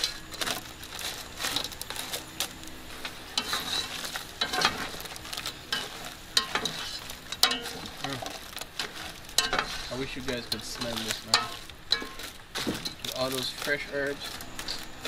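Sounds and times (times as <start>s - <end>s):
shrimp sizzling in a pot: 0.0s - 15.0s
spatula scraping a metal pot: 3.4s - 8.0s, 8.7s - 13.0s.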